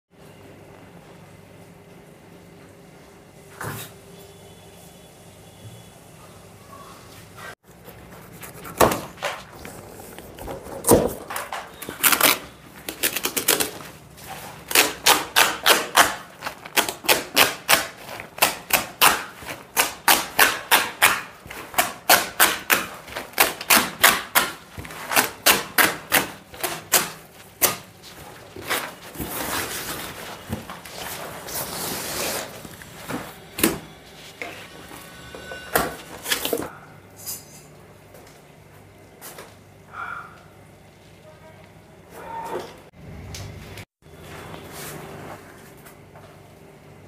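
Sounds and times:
plastic sack tearing: 9.0 - 14.0.

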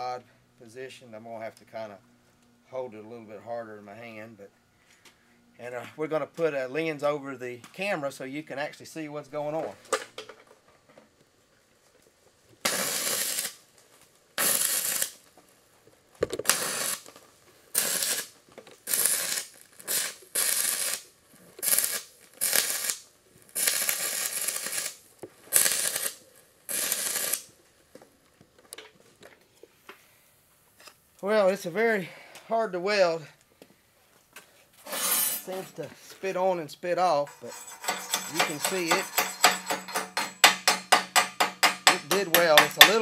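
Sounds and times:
welding arc crackling: 12.6 - 13.6, 14.4 - 15.2, 16.4 - 27.5, 37.3 - 43.0.

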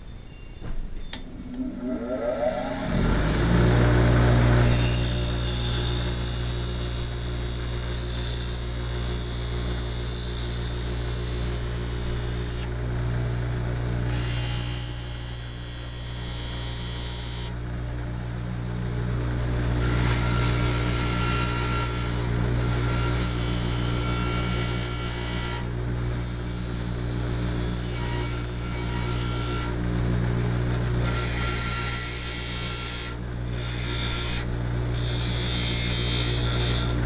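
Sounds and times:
bench grinder motor hum: 2.6 - 12.7, 19.5 - 29.9, 30.7 - 37.0.

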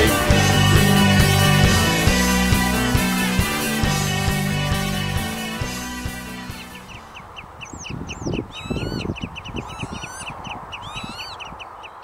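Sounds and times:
birds chirping: 0.0 - 12.0
wind buffeting microphone: 6.5 - 12.0
bird swooping whistles: 7.6 - 11.6.

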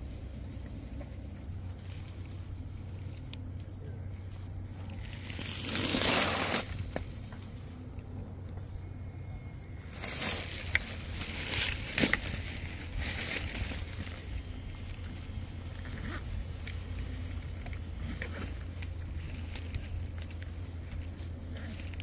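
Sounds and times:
brush and leaves rustling: 0.0 - 22.0
twigs snapping: 9.9 - 15.1.

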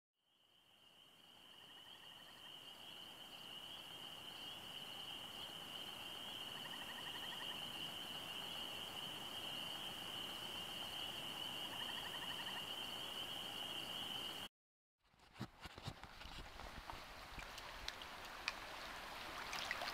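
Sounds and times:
distant frog chorus: 0.2 - 14.5.

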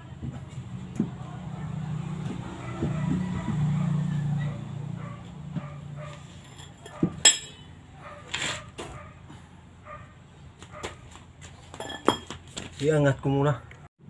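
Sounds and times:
metal tools clinking on concrete: 6.2 - 8.6, 11.7 - 12.4.

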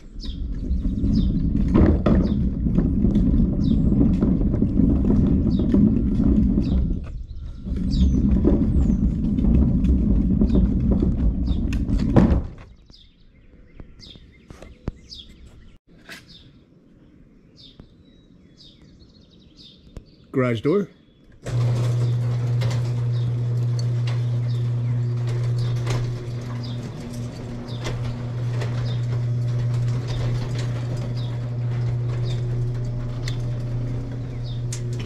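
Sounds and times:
trash can wheels rumbling on asphalt: 0.0 - 12.8, 21.4 - 35.0
birds chirping: 0.0 - 35.0.

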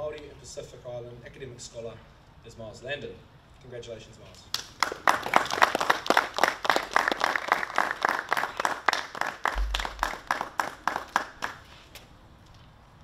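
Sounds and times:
small group clapping: 4.5 - 11.7.

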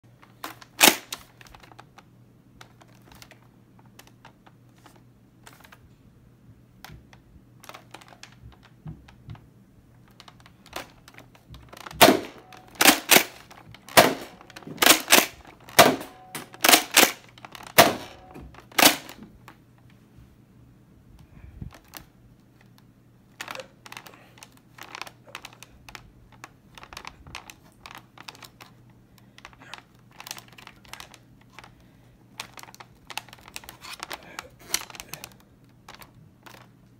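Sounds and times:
toy blaster plastic clicks and clacks: 0.2 - 2.0, 10.1 - 19.2, 23.4 - 31.8, 32.4 - 36.8.

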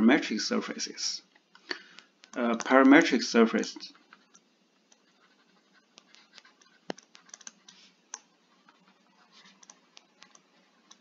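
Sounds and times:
stylus tapping on tablet screen: 5.9 - 8.8.

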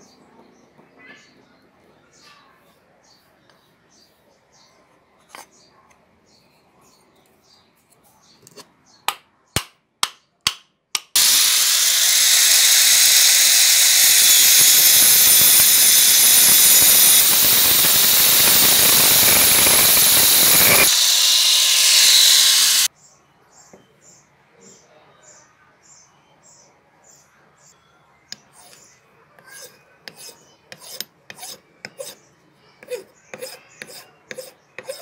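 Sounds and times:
angle grinder cutting wood: 11.2 - 22.9.

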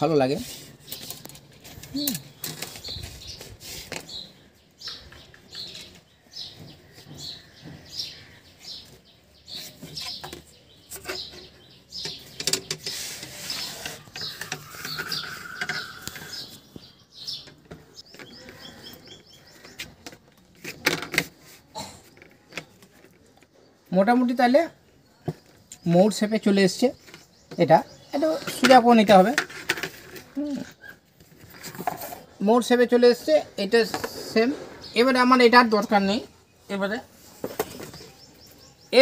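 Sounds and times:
small bird chirping: 0.0 - 20.0, 30.0 - 39.0.

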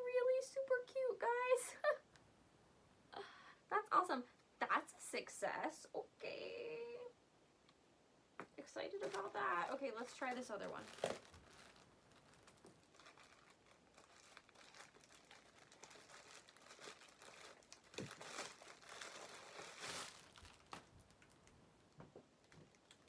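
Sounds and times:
plastic packaging crinkling: 8.6 - 21.6, 22.4 - 23.0.

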